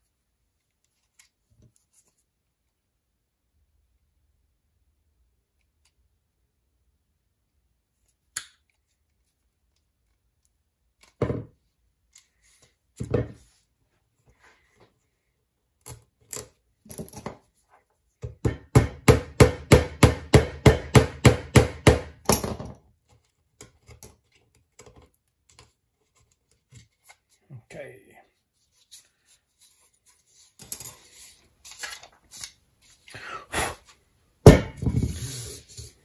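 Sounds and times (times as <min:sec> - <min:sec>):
knocks on wooden worktop: 0:34.5 - 0:35.1.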